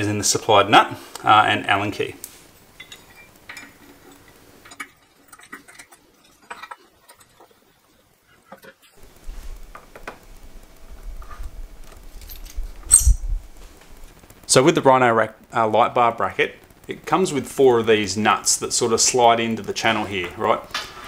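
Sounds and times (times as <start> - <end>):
metallic clicks and clinks: 2.8 - 8.9, 12.1 - 13.2.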